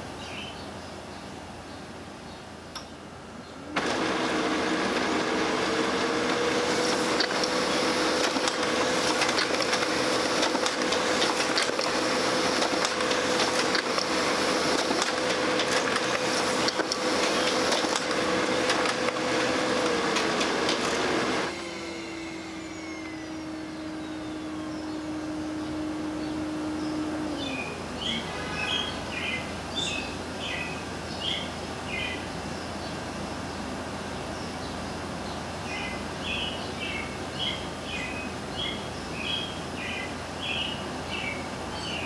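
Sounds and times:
printer hum: 3.2s - 34.2s
laser printer whirring: 3.6s - 29.7s.

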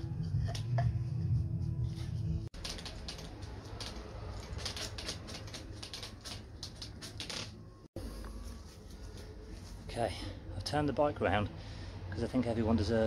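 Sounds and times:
background music: 0.0s - 2.5s.

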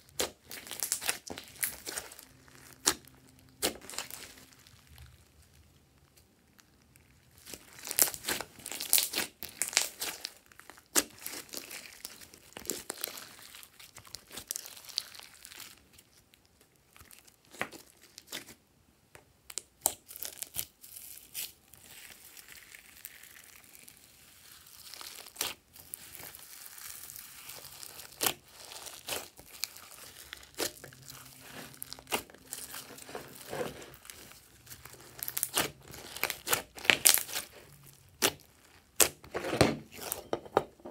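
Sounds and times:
tinsel and plastic bag crinkling: 21.8s - 39.2s.

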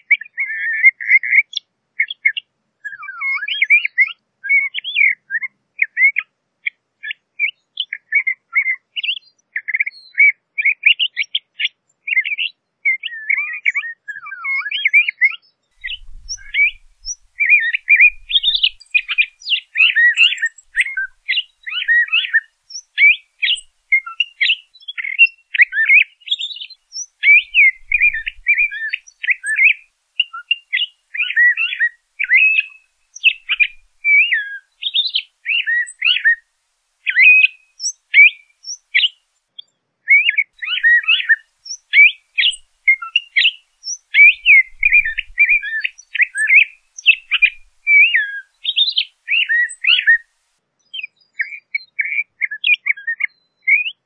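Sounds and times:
bird singing varied phrases: 0.0s - 54.0s.

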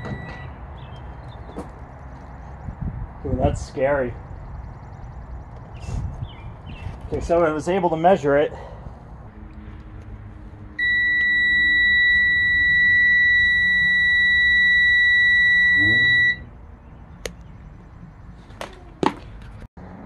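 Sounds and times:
multimeter continuity beep: 10.8s - 16.4s.

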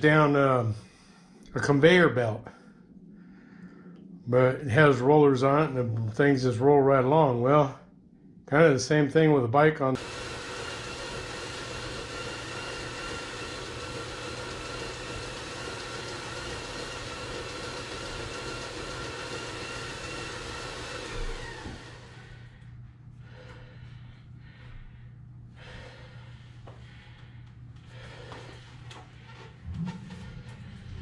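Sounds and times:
bicycle tyres whining on rollers: 10.0s - 22.7s, 27.9s - 31.0s.

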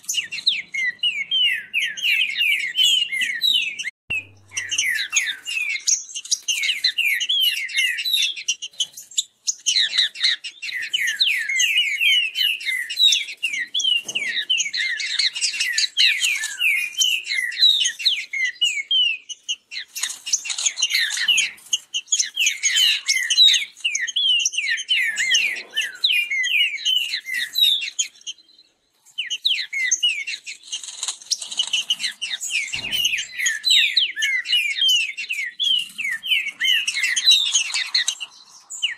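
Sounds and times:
birds singing rapid whistled notes: 0.0s - 38.9s.

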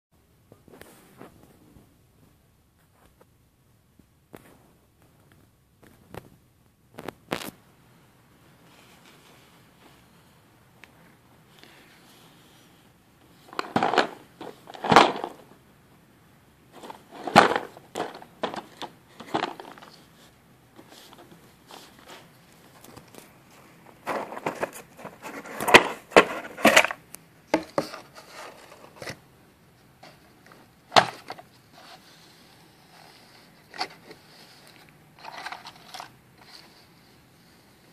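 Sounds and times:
cardboard pieces shifting: 16.8s - 20.0s.

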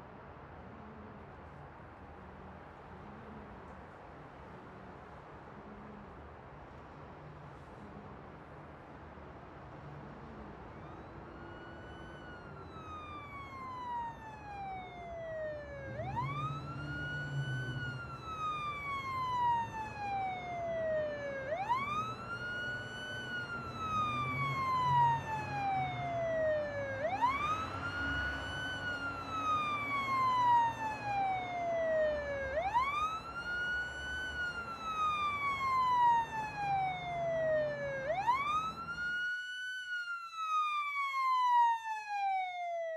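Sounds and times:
emergency vehicle siren wailing: 9.8s - 42.9s.

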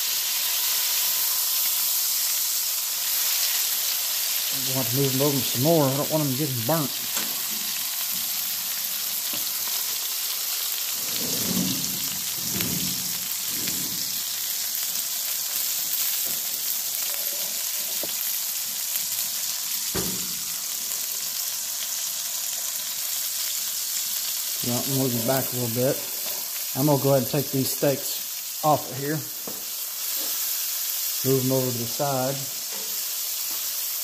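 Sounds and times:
steaks sizzling in a skillet: 0.0s - 34.0s
skillet scraping on stovetop: 11.0s - 14.2s
sharp knock: 20.0s - 20.4s.

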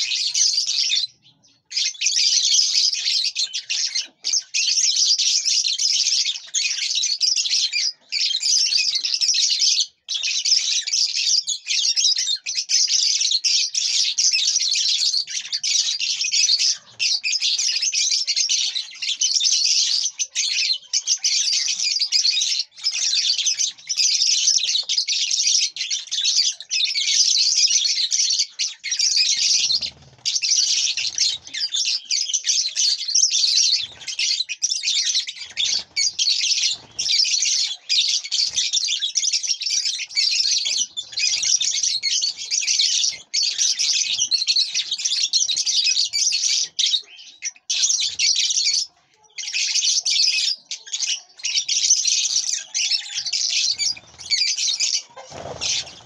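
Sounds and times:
birds chattering: 0.0s - 56.0s.

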